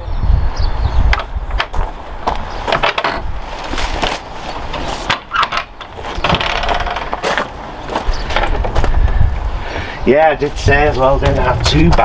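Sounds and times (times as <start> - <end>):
knocks and clatters: 1.1 - 9.0
rough noise: 1.1 - 12.0.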